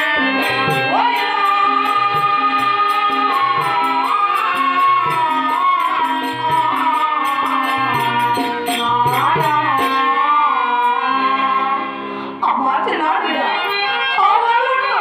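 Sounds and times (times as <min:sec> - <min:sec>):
drum and percussion beat: 0:00.0 - 0:10.0
harmonium held notes: 0:00.0 - 0:15.0
woman singing: 0:00.0 - 0:15.0.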